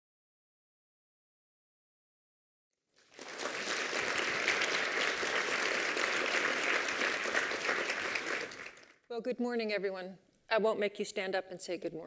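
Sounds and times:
audience applauding: 0:03.0 - 0:09.0.

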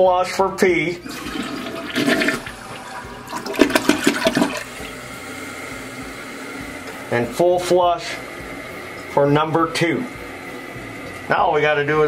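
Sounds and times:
toilet flushing: 0:00.9 - 0:12.0
water gurgling: 0:01.0 - 0:06.8.

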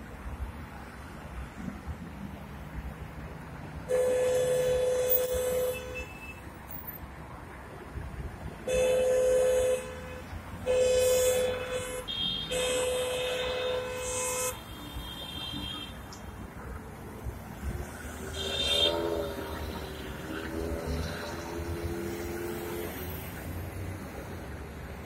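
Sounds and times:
slow-moving traffic rumble: 0:00.0 - 0:25.0
car horn honking: 0:03.9 - 0:06.4, 0:08.7 - 0:16.0, 0:18.4 - 0:19.4.

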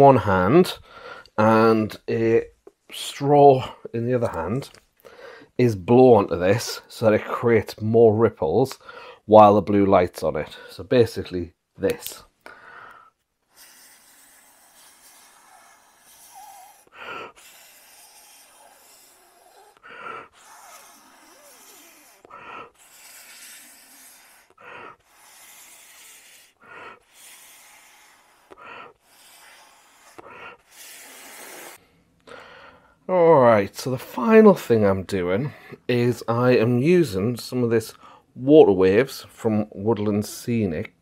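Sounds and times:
sharp in-breath: 0:08.8 - 0:09.2, 0:12.4 - 0:33.0
breath blown through a straw: 0:12.5 - 0:31.8.

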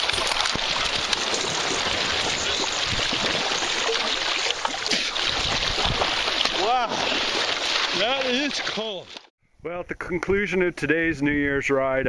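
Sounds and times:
water splashing and churning: 0:00.0 - 0:09.3.

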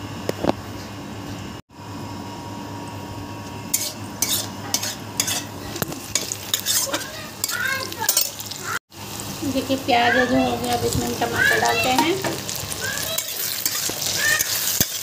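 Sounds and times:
spatula scraping frying onions: 0:03.7 - 0:08.8, 0:10.5 - 0:15.0.

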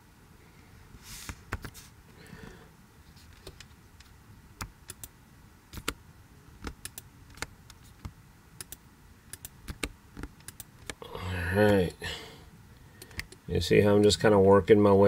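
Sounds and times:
mouse and keyboard clicks: 0:05.7 - 0:06.0, 0:06.6 - 0:11.0.

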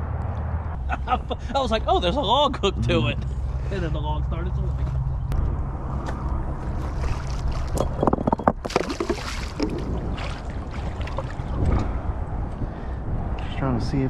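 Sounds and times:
wind rumbling on microphone: 0:04.6 - 0:14.0
fish thrashing and splashing: 0:06.7 - 0:08.0, 0:08.6 - 0:11.6.

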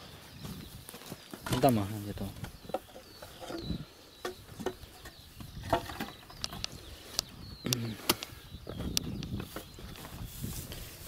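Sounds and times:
faint bird chirp: 0:00.0 - 0:11.0
tools knocking earth and stones: 0:02.4 - 0:06.7.

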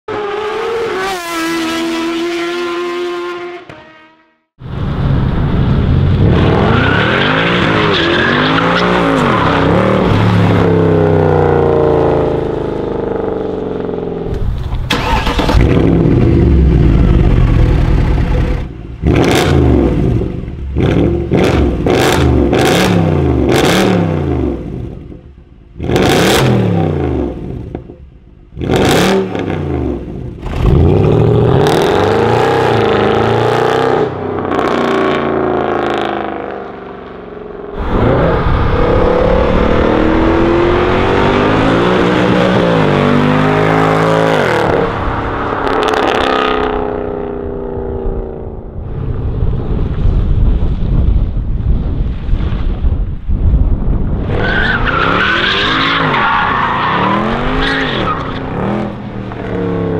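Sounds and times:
car engine revving: 0:05.5 - 0:25.1, 0:25.8 - 0:27.9, 0:28.6 - 0:48.8.

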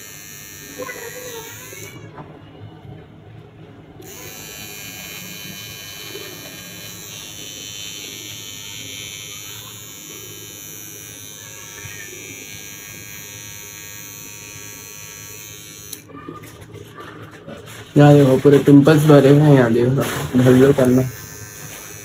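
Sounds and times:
electric beard trimmer buzzing: 0:00.0 - 0:02.1, 0:04.0 - 0:16.1, 0:20.3 - 0:22.0.

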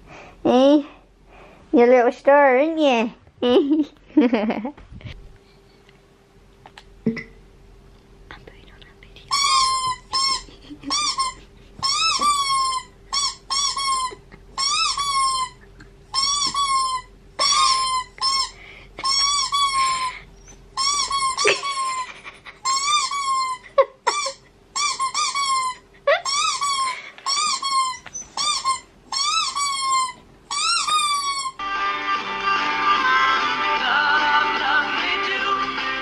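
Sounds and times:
small dog whining: 0:09.4 - 0:31.6.

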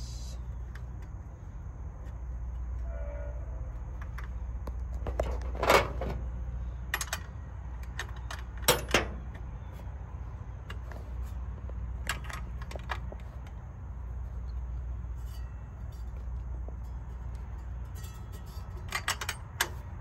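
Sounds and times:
steady low rumble: 0:00.0 - 0:20.0
metal wrenches clinking: 0:15.1 - 0:20.0.

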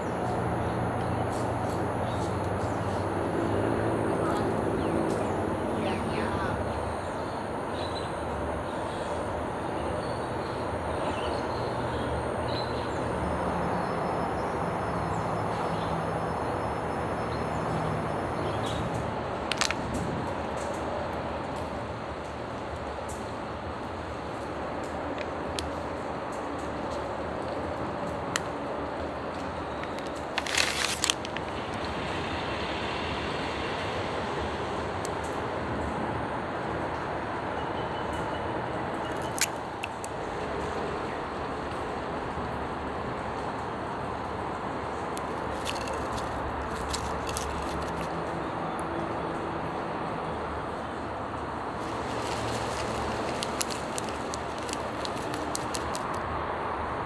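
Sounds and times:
distant vehicle traffic: 0:00.0 - 0:57.0
plastic packaging crinkling: 0:19.5 - 0:19.9, 0:29.8 - 0:31.9, 0:39.1 - 0:40.0, 0:45.2 - 0:48.2, 0:51.8 - 0:56.2.

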